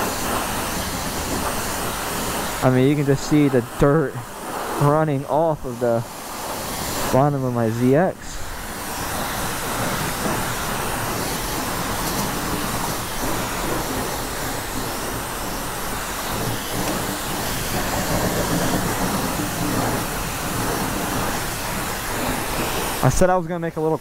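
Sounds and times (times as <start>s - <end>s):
high-pressure water spray hissing: 0.0s - 24.0s.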